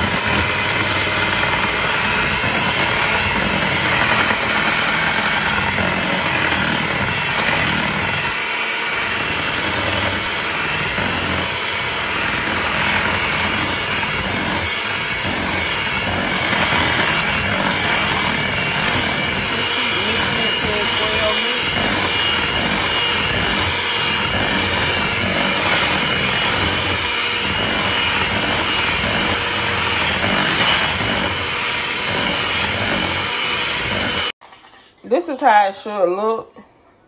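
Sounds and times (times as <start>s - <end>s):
electric hand mixer whipping batter: 0.0s - 34.4s.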